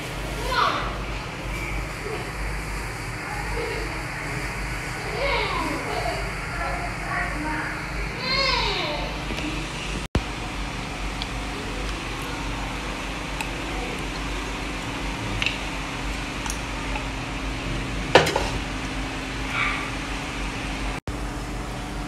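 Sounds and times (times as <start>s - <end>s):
kitchen background hum and hiss: 0.0s - 22.0s
sharp knock: 18.2s - 18.6s.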